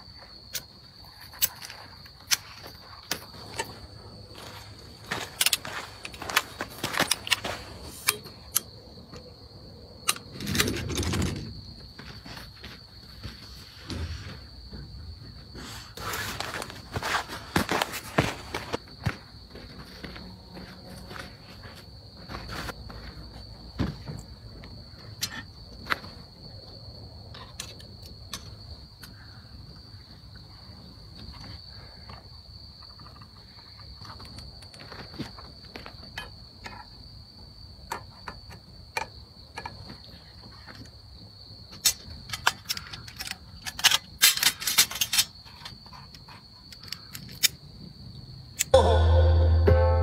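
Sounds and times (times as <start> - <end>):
folding table scraping: 10.3 - 11.6.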